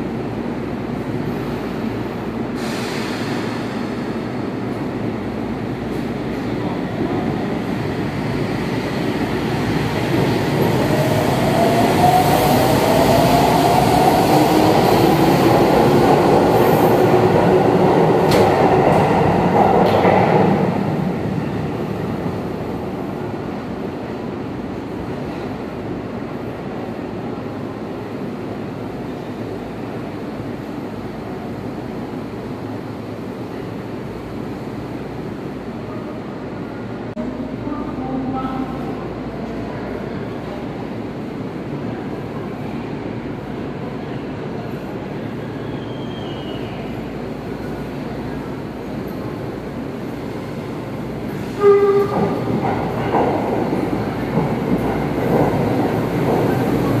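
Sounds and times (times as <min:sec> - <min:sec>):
train wheels rumbling: 0:45.8 - 0:57.0.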